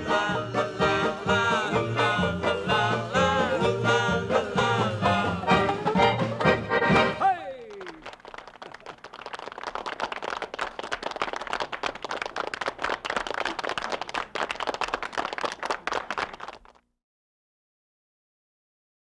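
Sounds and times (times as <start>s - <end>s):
polka band note: 0.0s - 7.4s
audience clapping: 6.2s - 16.8s.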